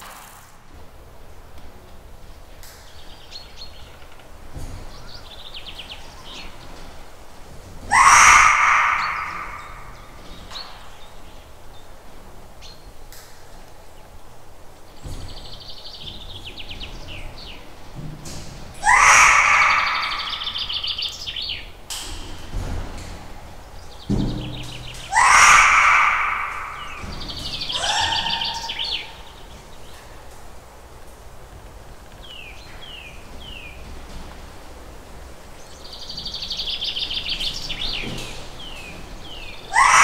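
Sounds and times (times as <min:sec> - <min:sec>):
birds harsh calls: 0:02.1 - 0:40.0
high bird trills: 0:07.8 - 0:11.6, 0:18.8 - 0:21.7, 0:23.7 - 0:30.0, 0:35.6 - 0:40.0.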